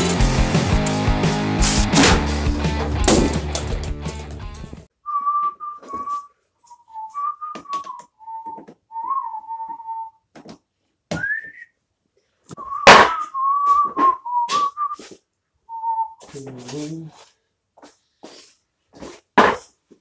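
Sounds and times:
person whistling a tune: 5.0 - 10.2, 11.1 - 11.8, 12.5 - 15.1, 15.7 - 17.1
loud thump: 12.8 - 13.3.

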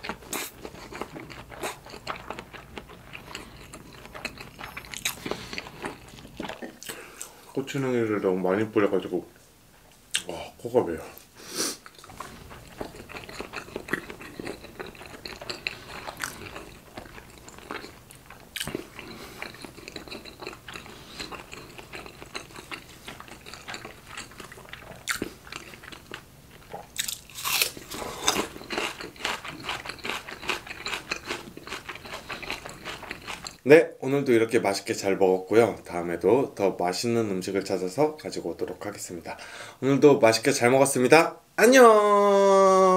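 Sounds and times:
person chewing food: 0.0 - 7.5, 11.2 - 33.6.

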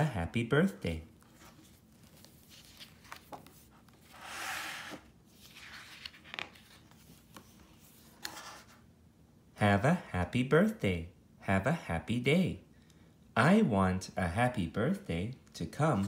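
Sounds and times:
book page turning: 1.1 - 8.8
fingers tapping and rustling pages: 1.3 - 4.1.

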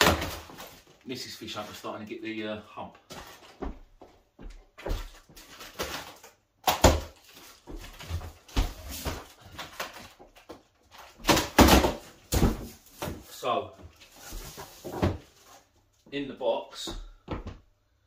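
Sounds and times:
cardboard flaps scraping and rustling: 7.2 - 15.8.

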